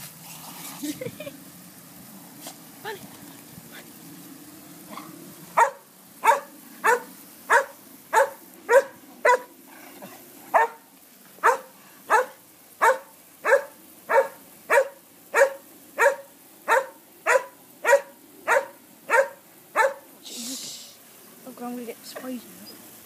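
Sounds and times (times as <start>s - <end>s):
dog barking: 4.9s - 9.5s, 10.5s - 10.8s, 11.4s - 20.0s.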